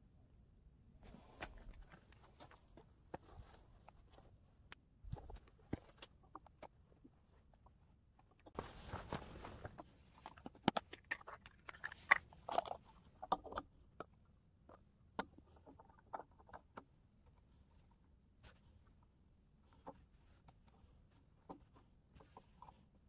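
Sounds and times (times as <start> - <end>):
rustling: 8.4 - 13.2.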